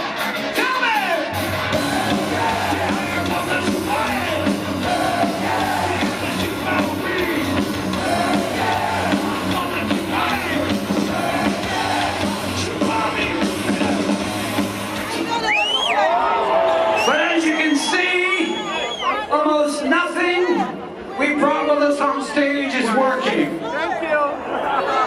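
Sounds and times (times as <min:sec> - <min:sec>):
heavy metal band playing: 0:00.0 - 0:15.7
low bass: 0:01.3 - 0:15.1.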